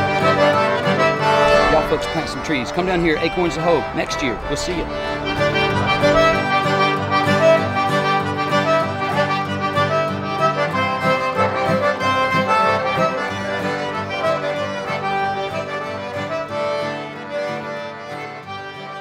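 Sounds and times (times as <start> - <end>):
accordion music with steady beat: 0.0 - 2.0, 5.8 - 19.0.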